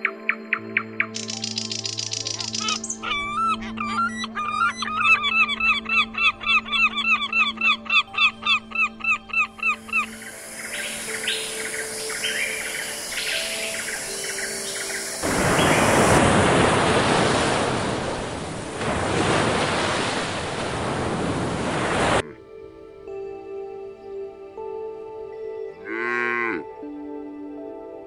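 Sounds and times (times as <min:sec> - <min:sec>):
soft background music: 0:00.0 - 0:19.0, 0:22.2 - 0:28.0
waves washing onto beach: 0:10.5 - 0:22.2.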